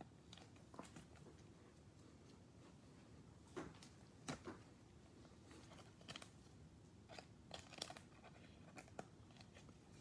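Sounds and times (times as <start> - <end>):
plastic card sleeve crinkling: 5.5 - 10.0.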